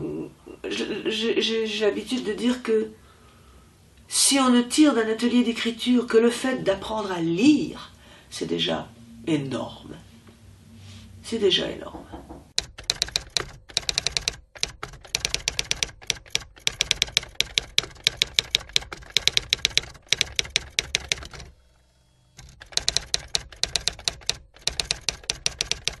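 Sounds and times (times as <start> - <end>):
typewriter keys clacking: 12.6 - 21.5, 22.4 - 26.0.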